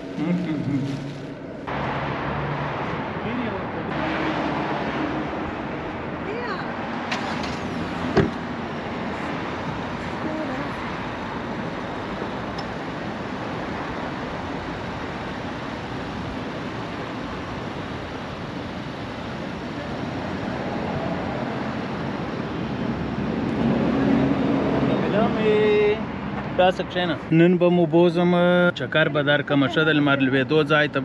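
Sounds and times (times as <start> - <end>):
traffic noise: 0.0 - 31.0.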